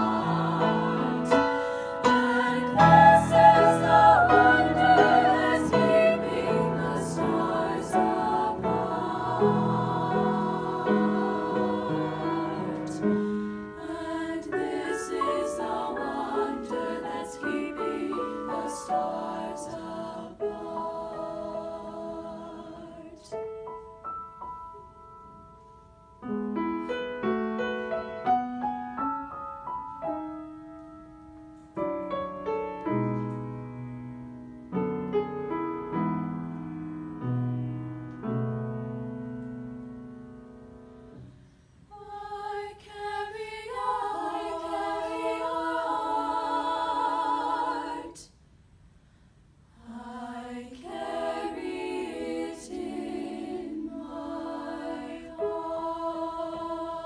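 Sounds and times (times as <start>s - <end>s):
upper-voice choir singing chord: 0.0s - 23.7s, 41.9s - 48.4s, 49.7s - 57.0s
piano chords and notes: 0.0s - 41.4s.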